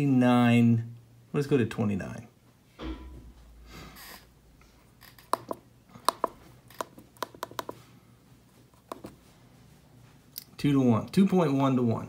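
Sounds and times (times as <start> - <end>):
keypad buttons clicking: 5.3 - 7.8.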